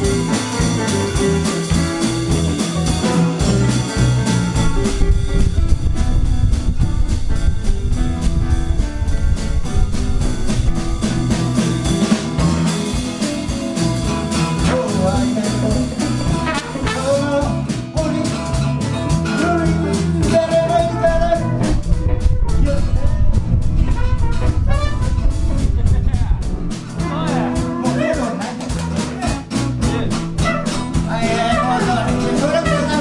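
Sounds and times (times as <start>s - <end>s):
drum kit: 0.0s - 33.0s
electric bass: 0.0s - 33.0s
guitars: 0.0s - 33.0s
trumpet melody: 14.6s - 15.3s, 16.2s - 17.6s, 20.3s - 25.5s, 30.2s - 33.0s.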